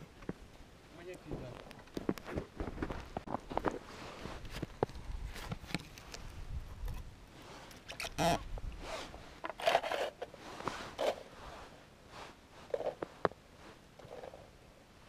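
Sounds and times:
hands handling plastic device: 4.4s - 7.0s.

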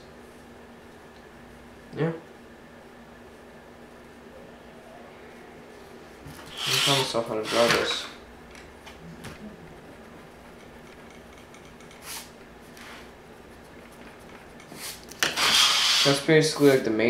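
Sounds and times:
eraser rubbing on paper: 14.7s - 16.2s.

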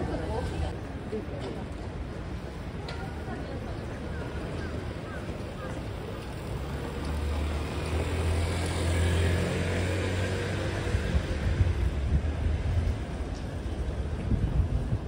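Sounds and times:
low traffic rumble: 0.0s - 15.0s
motor scooter passing: 6.3s - 12.0s.

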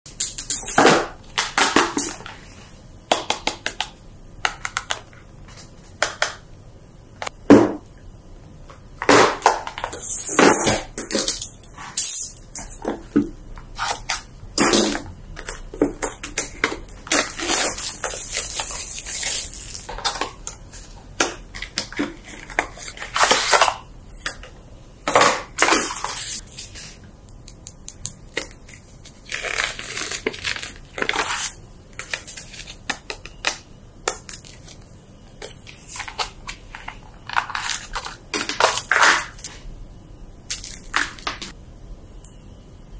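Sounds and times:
packaging rustling and crinkling: 17.0s - 20.9s.

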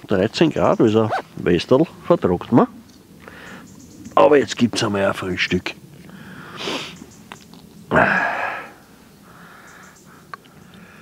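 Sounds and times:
person breathing out hard: 3.2s - 3.6s, 6.1s - 7.0s, 7.9s - 11.0s
person sniffing: 6.4s - 7.0s.

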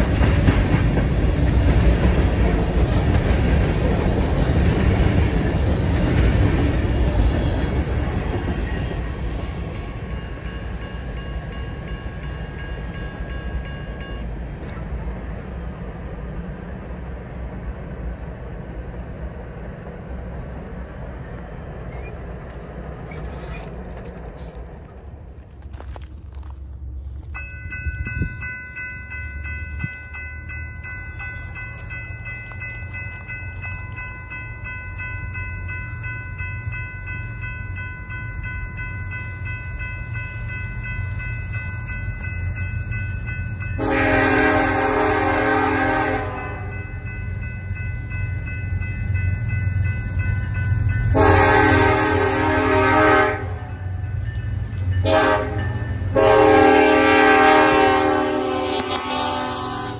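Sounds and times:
diesel train rumble: 0.0s - 59.9s
locomotive air horn blasts: 43.8s - 46.8s, 51.1s - 53.8s, 55.0s - 59.9s.

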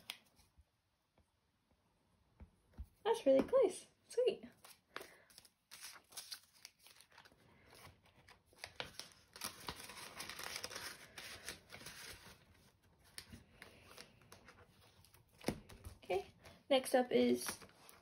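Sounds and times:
plastic envelopes and banknotes rustling: 4.6s - 18.0s.

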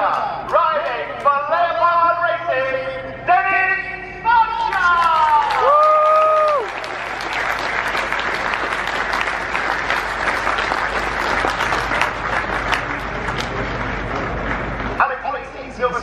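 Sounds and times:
crowd applauding: 4.7s - 15.0s.

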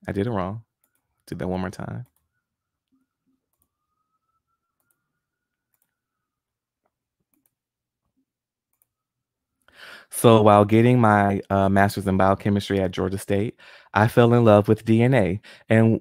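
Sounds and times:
computer mouse clicks: 3.5s - 3.7s, 4.8s - 5.0s, 5.7s - 6.0s, 7.3s - 7.6s, 8.7s - 8.9s.

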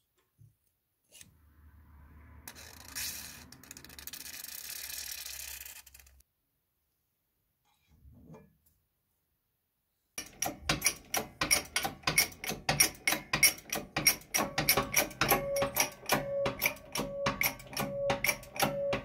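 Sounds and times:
hammer striking metal punch: 10.2s - 19.0s.

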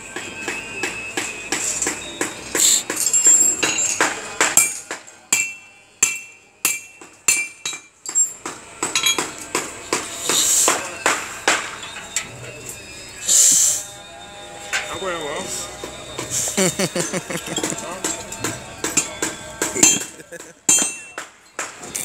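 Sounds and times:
hammer striking steel bars: 0.1s - 12.2s, 17.3s - 22.0s.

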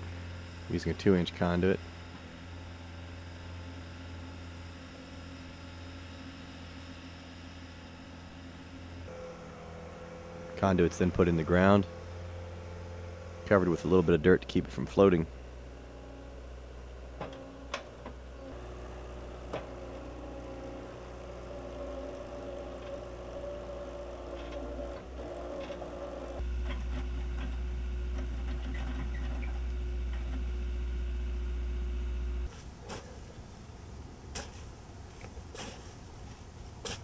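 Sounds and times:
skid steer engine running: 0.0s - 37.0s.

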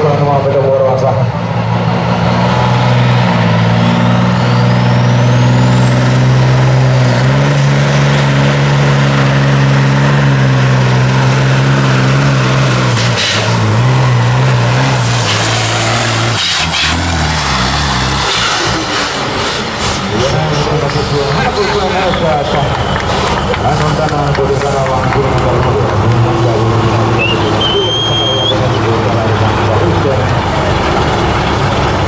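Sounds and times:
diesel truck engine under load: 0.0s - 32.0s
high whistle: 27.2s - 28.6s.

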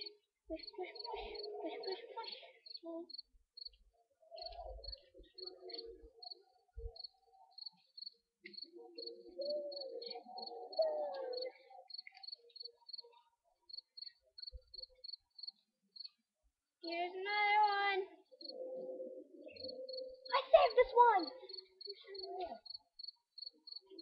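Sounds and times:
faint voice murmuring: 0.0s - 3.2s, 4.1s - 13.4s, 16.9s - 22.8s
cricket chirping: 4.4s - 16.2s, 18.4s - 24.0s.

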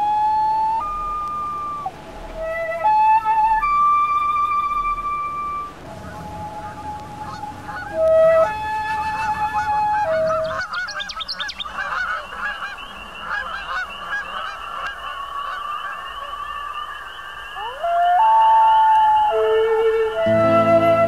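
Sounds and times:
flute-like melody: 0.0s - 11.0s, 17.6s - 21.0s
honking calls: 0.0s - 21.0s
rising glide: 17.6s - 21.0s.

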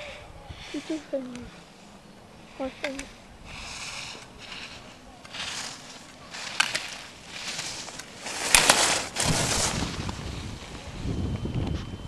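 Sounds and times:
skis scraping on hard snow: 2.4s - 11.1s.

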